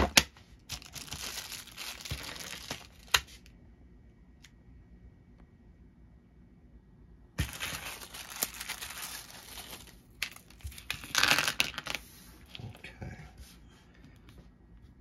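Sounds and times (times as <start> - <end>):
plastic packaging crinkling: 0.7 - 3.4, 7.4 - 12.0.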